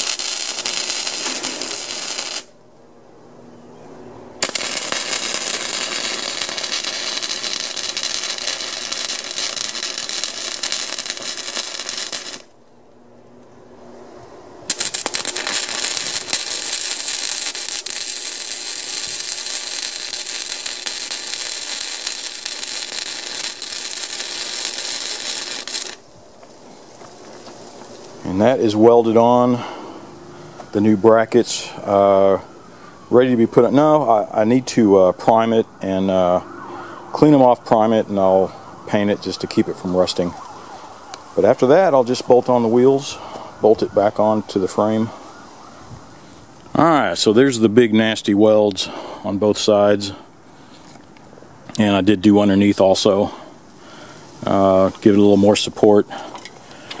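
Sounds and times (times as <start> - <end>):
welder arc crackling: 0.0 - 2.6, 4.4 - 12.6, 14.7 - 28.4.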